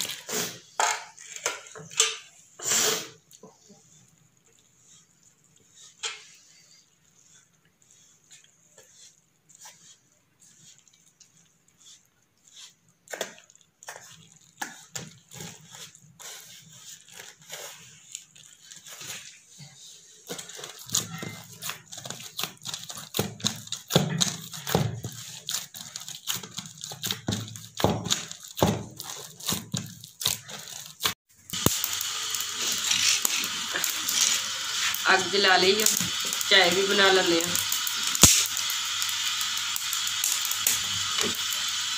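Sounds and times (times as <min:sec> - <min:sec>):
dough kneaded in metal bowl: 0:00.0 - 0:41.9
straw fire crackling: 0:20.4 - 0:41.9.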